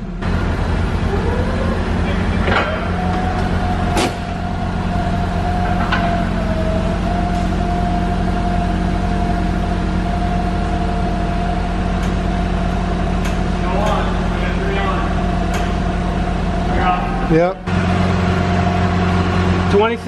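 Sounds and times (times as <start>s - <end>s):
forklift engine running: 0.0s - 20.0s
hydraulic whine: 0.0s - 20.0s.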